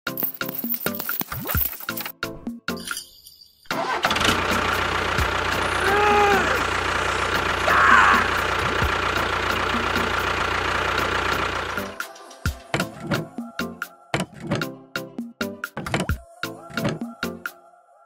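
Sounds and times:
motor running: 4.0s - 12.0s.

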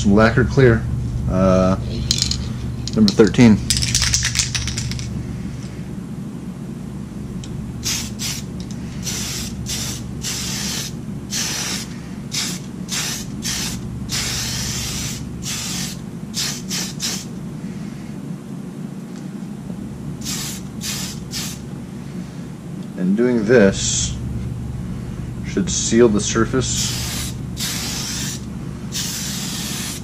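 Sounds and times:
steady low hum: 0.0s - 30.0s
aerosol can spraying: 7.8s - 17.3s, 20.2s - 21.6s, 26.8s - 30.0s.

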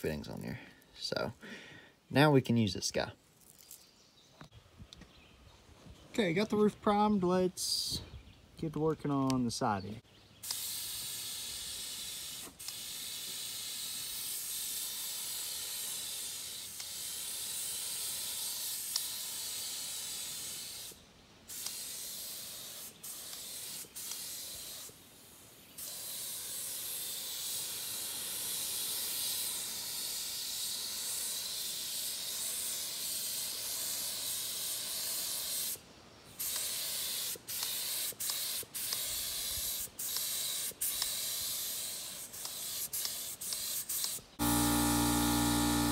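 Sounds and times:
spray gun hissing: 10.4s - 45.9s.

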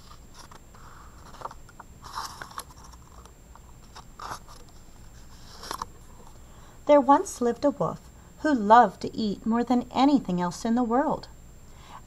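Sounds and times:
book pages rustling: 0.0s - 6.3s.

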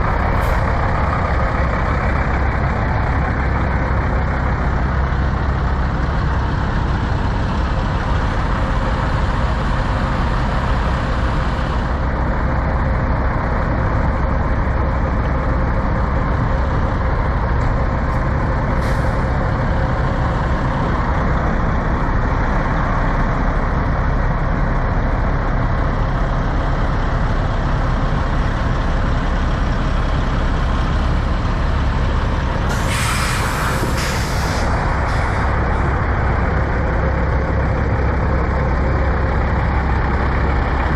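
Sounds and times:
diesel engines idling: 0.0s - 40.9s
air brake hiss: 18.8s - 19.3s, 32.7s - 35.6s
air hiss: 32.7s - 35.6s.

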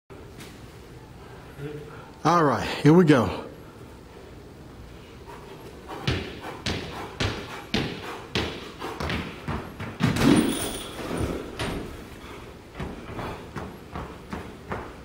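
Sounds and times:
sneakers on hardwood floor: 6.0s - 12.1s, 12.7s - 15.0s
body thudding into heavy bag: 10.0s - 11.8s.

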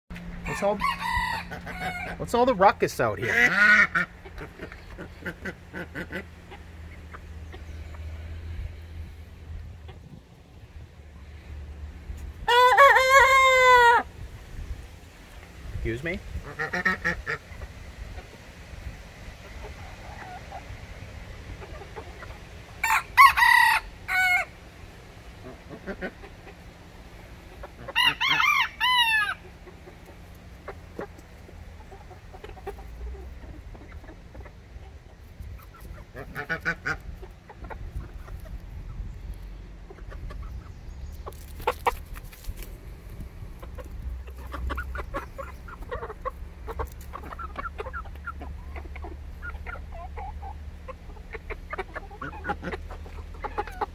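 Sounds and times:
chickens clucking: 0.1s - 53.9s
rooster crowing: 0.4s - 2.2s, 12.5s - 14.1s, 22.8s - 24.5s, 27.9s - 29.4s.

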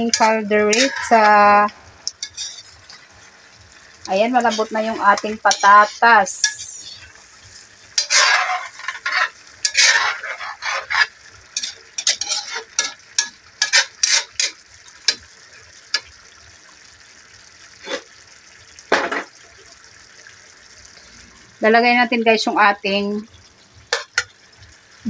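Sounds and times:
metal utensil scraping wok: 0.0s - 3.4s, 4.1s - 15.3s.

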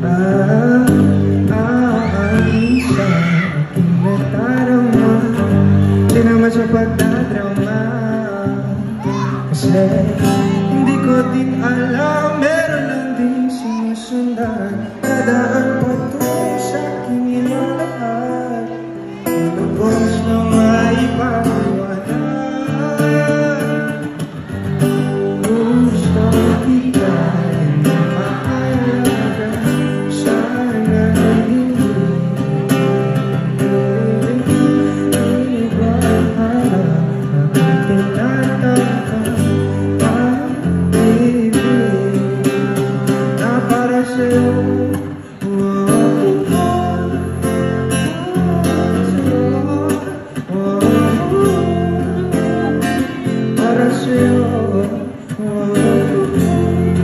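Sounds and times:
acoustic guitar and band: 0.0s - 57.0s
man singing into a microphone: 0.0s - 57.0s.

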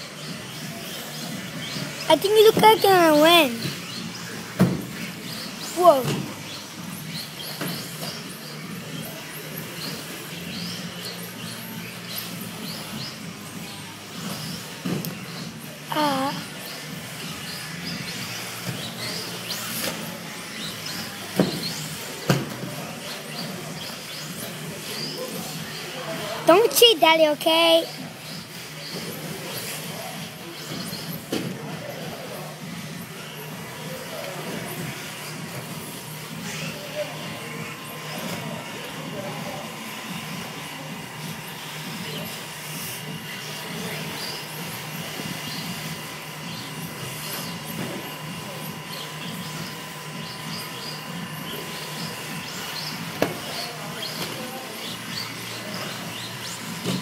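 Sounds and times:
rc car motors whining: 0.0s - 57.0s.

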